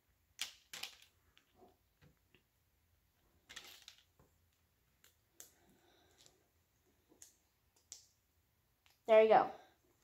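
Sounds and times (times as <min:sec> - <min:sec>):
plastic bricks clicking together: 0:00.4 - 0:01.6.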